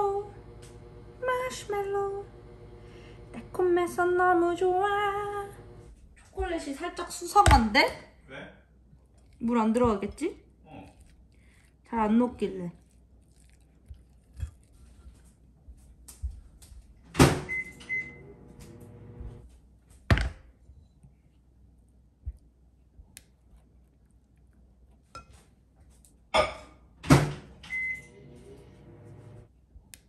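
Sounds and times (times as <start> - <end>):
microwave oven humming: 0.0 - 5.9, 17.1 - 19.4, 27.1 - 29.5.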